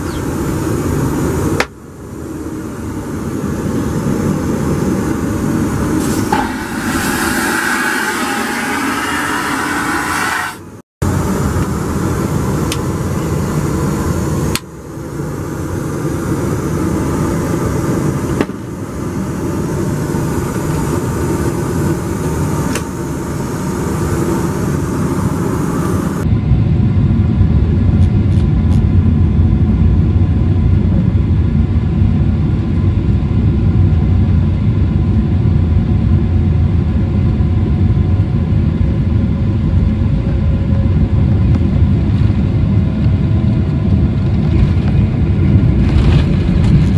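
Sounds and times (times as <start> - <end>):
deep engine rumble: 0.0 - 46.9
jet cabin noise: 0.0 - 46.9
vacuum toilet flushing: 6.0 - 10.7.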